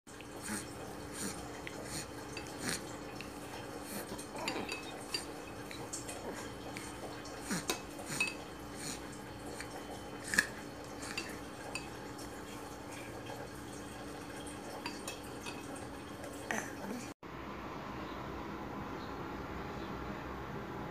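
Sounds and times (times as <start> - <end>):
metal spoon clinking on ceramic bowl: 4.4 - 6.0.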